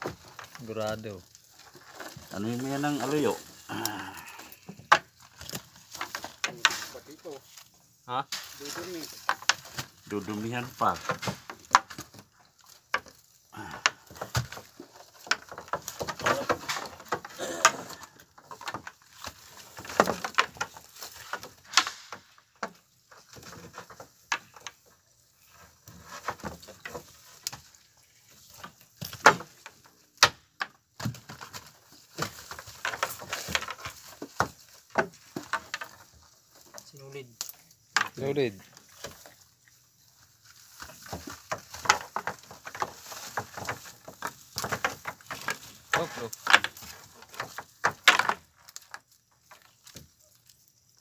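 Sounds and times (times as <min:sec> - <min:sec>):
knocks and clatter on deck: 0:40.9 - 0:48.4.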